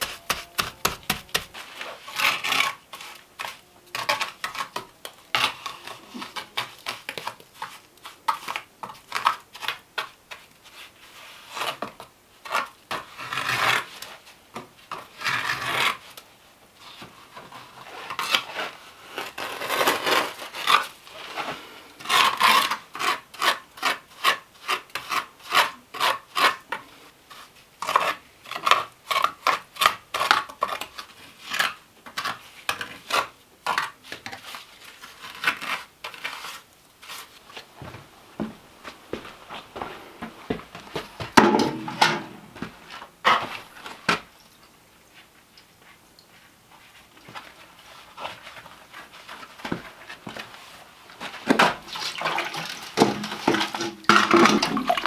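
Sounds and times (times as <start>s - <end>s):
trowel scraping wet mortar: 0.0s - 11.8s, 12.4s - 14.2s, 22.0s - 26.7s, 27.3s - 37.3s.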